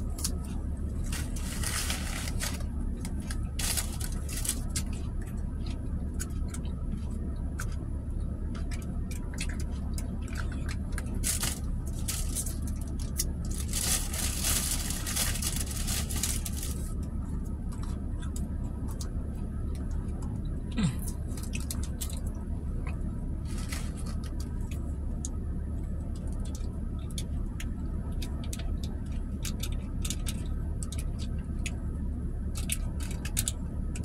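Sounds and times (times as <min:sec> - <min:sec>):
car low hum: 0:00.0 - 0:34.0
plastic packaging crinkling: 0:01.0 - 0:04.9, 0:10.3 - 0:17.0, 0:23.5 - 0:24.7.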